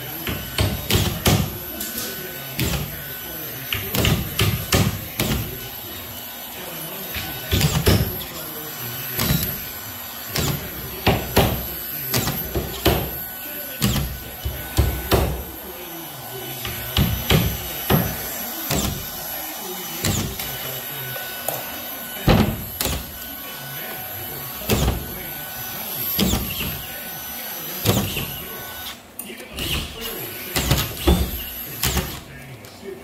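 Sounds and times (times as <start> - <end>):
hammer driving nails: 0.2 - 1.6, 2.6 - 3.0, 3.7 - 5.6, 7.2 - 8.2, 9.2 - 9.7, 10.3 - 13.2, 13.8 - 15.4, 16.6 - 19.1, 20.0 - 20.6, 22.2 - 23.2, 24.6 - 25.2, 26.2 - 26.9, 27.8 - 28.4, 29.6 - 32.2.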